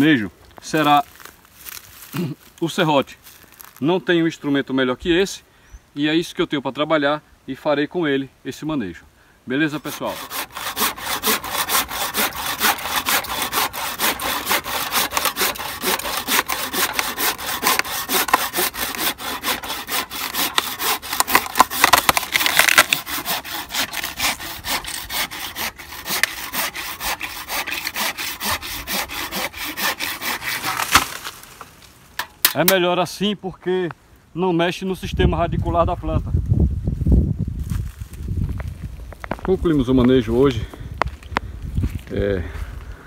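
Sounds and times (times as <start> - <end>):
handsaw cutting a branch: 9.8 - 31.4.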